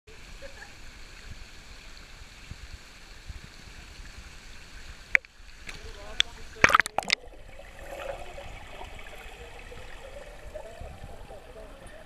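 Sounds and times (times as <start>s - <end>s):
water lapping and sloshing: 2.8s - 12.0s.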